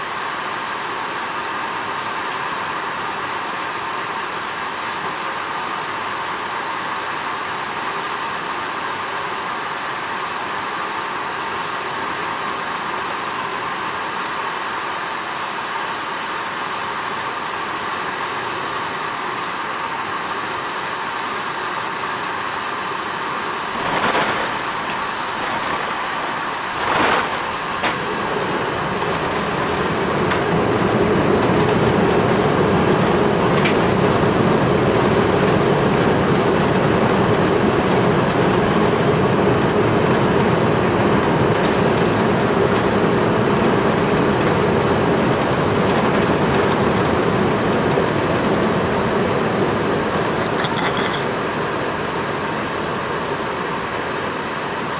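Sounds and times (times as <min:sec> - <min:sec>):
airplane cabin roar: 0:21.6 - 0:54.9.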